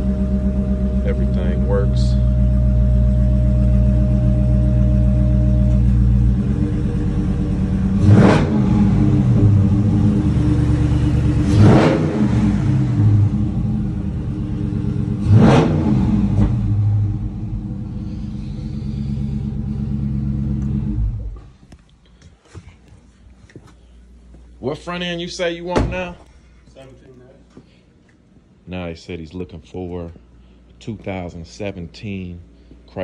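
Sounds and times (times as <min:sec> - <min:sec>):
engine idling and revving: 0:00.0 - 0:21.6.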